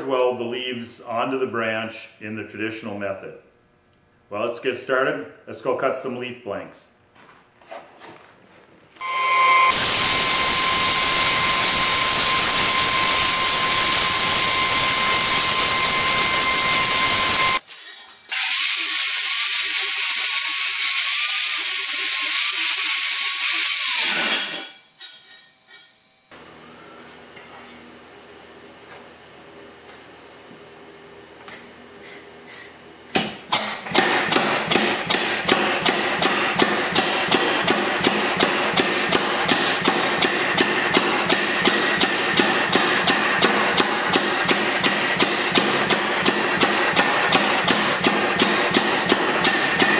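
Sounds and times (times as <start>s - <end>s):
power hammer striking hot steel: 9.0s - 17.6s, 18.3s - 26.0s, 33.1s - 49.9s
plasma cutter hissing: 9.4s - 17.6s
air hiss puffs: 31.5s - 32.8s.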